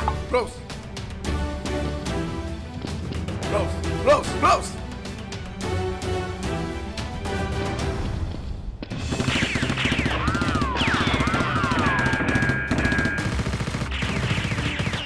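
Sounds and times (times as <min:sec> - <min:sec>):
background music: 0:00.0 - 0:15.0
machine-gun burst: 0:09.0 - 0:15.0
falling whistle-like tones: 0:09.4 - 0:13.3.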